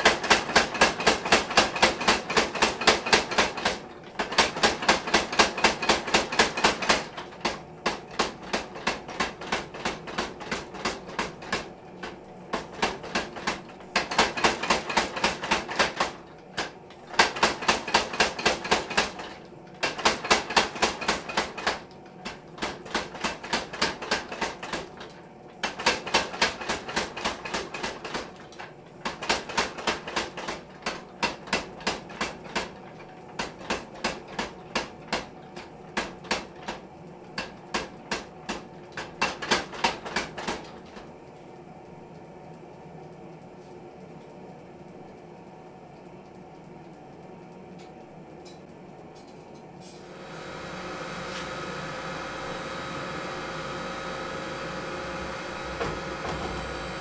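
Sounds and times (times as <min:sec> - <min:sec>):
power hammer striking hot metal: 0:17.1 - 0:21.8, 0:50.0 - 0:57.0.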